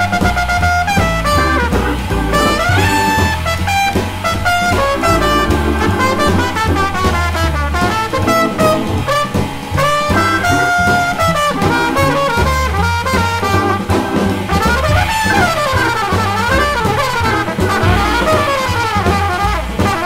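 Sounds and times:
brass-led jazz music: 0.0s - 20.0s.

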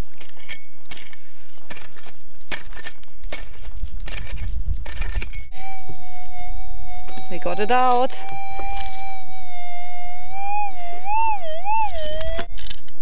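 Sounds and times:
pick striking stony ground: 0.0s - 5.5s.

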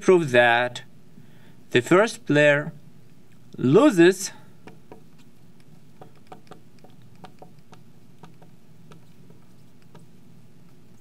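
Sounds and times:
marker tapping on glass: 6.0s - 9.0s.

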